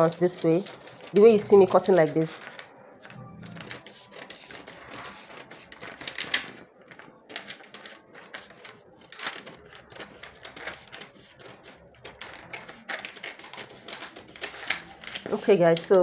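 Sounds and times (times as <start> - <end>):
scissors snipping paper: 3.6 - 6.5, 7.3 - 15.9
paper crackling: 3.6 - 15.9.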